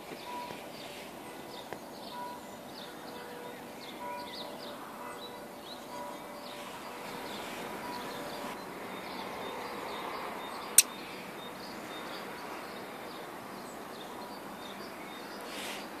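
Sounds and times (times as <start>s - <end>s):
faint bird chirps: 0.1s - 12.9s.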